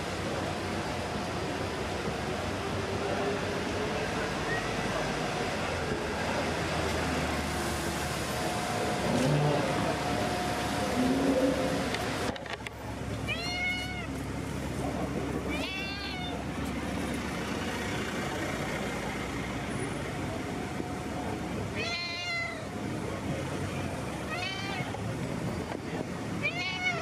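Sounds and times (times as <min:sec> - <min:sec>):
low street rumble: 0:00.0 - 0:27.0
cat meowing: 0:13.2 - 0:14.2, 0:15.4 - 0:16.4, 0:21.7 - 0:22.7, 0:24.2 - 0:25.0, 0:26.4 - 0:27.0.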